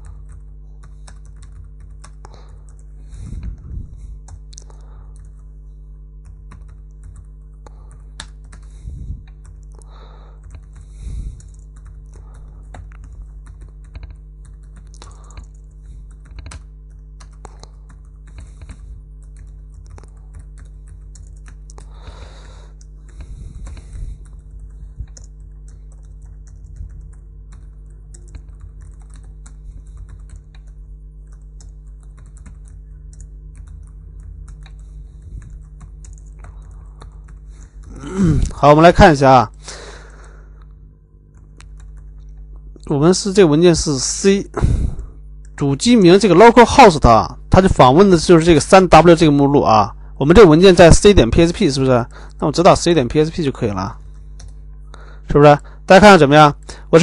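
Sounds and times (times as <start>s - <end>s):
typing on keyboard: 0.0s - 2.9s, 6.2s - 8.7s, 10.4s - 21.9s, 22.7s - 38.0s, 41.3s - 42.4s
low electrical hum: 0.0s - 57.0s.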